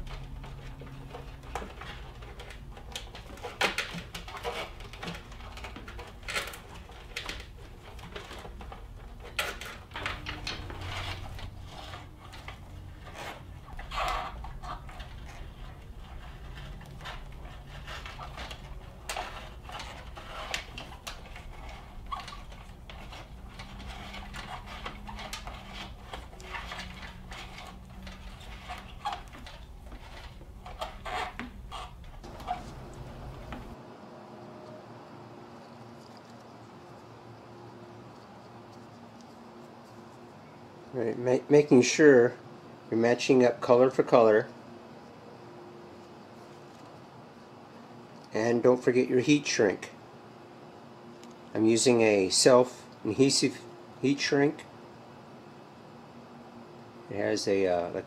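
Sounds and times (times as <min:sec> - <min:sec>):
hands handling wiring and tools: 0:00.0 - 0:33.8
low steady hum: 0:00.0 - 0:58.0.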